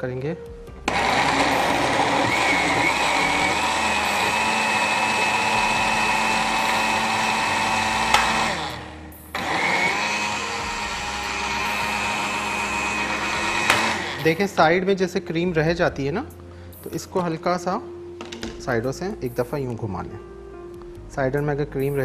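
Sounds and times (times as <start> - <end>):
blender running: 0.8 - 14.6.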